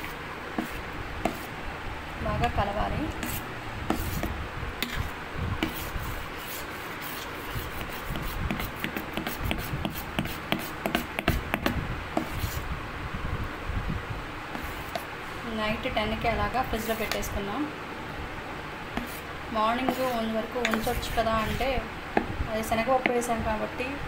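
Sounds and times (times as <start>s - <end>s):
ladle stirring batter in bowl: 0.0s - 1.6s, 2.4s - 12.7s, 14.5s - 15.1s, 16.5s - 17.4s, 18.9s - 23.3s.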